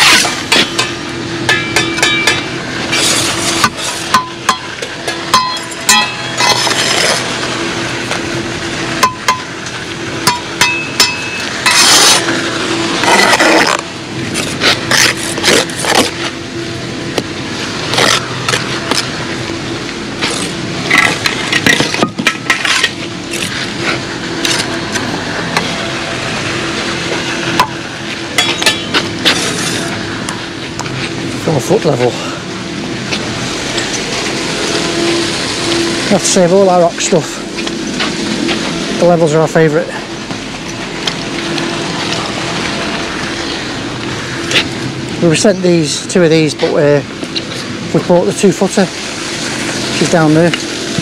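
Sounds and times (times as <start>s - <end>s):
steady low hum: 0.0s - 51.0s
trowel scraping mortar: 6.4s - 7.4s, 11.6s - 12.3s, 13.0s - 16.2s.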